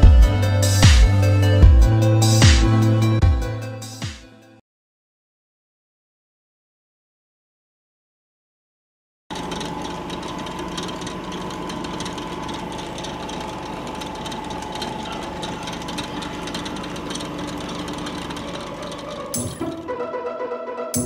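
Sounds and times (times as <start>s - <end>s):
constant hum: 9.3s - 20.0s
mechanical clattering drone: 9.3s - 20.2s.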